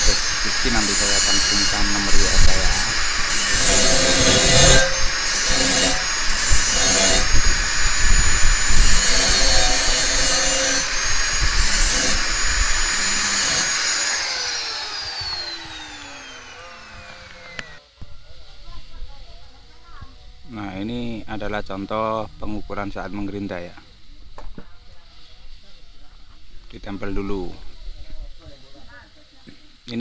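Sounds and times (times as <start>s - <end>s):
grinder disc spinning down: 0.0s - 19.0s
angle grinder grinding steel: 0.0s - 19.3s.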